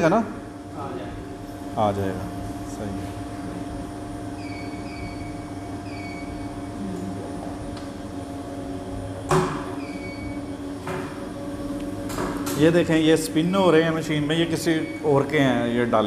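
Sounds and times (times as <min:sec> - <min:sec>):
laundromat machines humming: 0:00.0 - 0:16.0.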